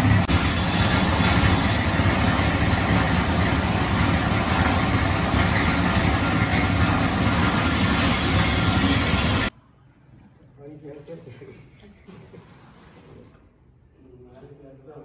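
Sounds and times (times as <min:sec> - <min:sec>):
grinding machine drone: 0:00.0 - 0:09.5.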